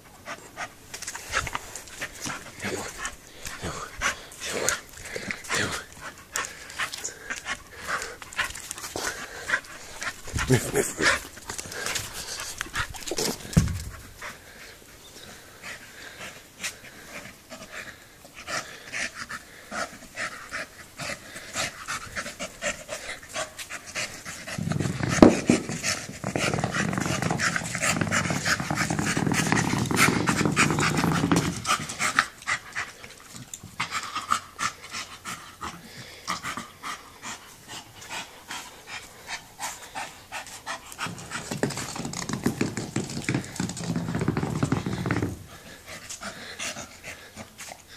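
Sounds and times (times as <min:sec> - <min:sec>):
dog panting hard: 0:00.0 - 0:47.9
heavy ball rolling over bricks: 0:08.5 - 0:14.3, 0:24.1 - 0:32.4, 0:40.9 - 0:46.3.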